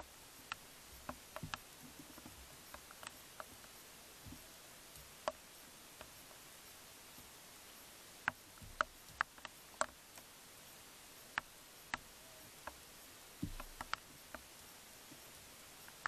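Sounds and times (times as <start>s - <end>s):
sharp clicks and ticks: 0.0s - 3.8s, 8.2s - 10.3s, 13.4s - 14.5s
faint hiss: 0.0s - 16.0s
soft low thump: 13.4s - 13.8s.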